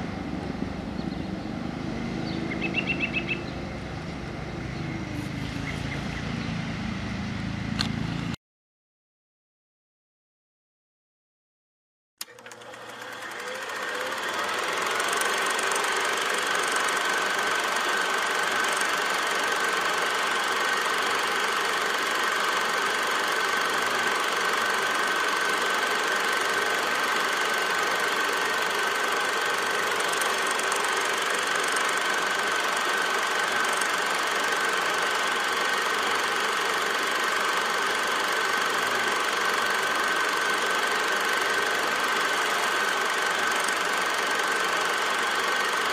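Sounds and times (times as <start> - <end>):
film projector whirring: 12.2 - 45.9.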